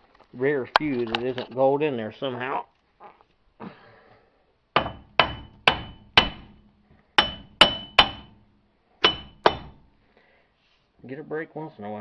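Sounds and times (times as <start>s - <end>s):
hammer blows on metal: 4.8s - 6.6s, 7.2s - 9.9s.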